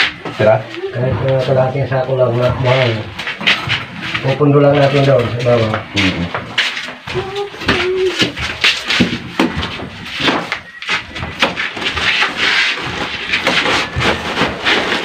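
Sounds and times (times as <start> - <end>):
hammer knocking on wood: 7.1 - 10.6.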